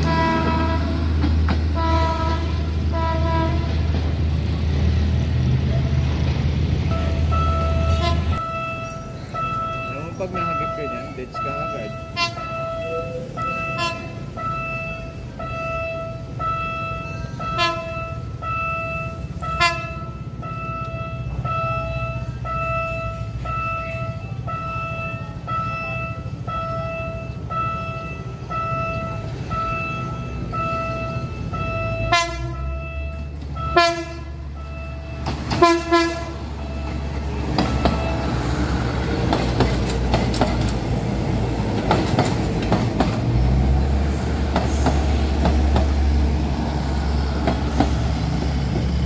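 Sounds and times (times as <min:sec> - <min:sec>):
train horn blasts: 0:00.0 - 0:03.9, 0:07.0 - 0:38.6
level-crossing warning beeper: 0:06.8 - 0:39.3
train wheels clattering: 0:36.8 - 0:49.0.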